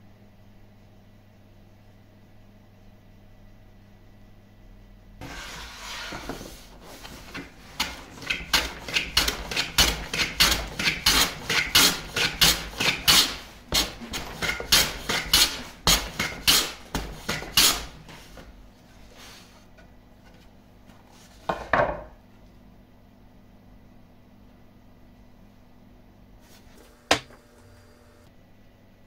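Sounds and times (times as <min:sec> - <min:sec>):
hand saw cutting wood: 0:07.2 - 0:18.0.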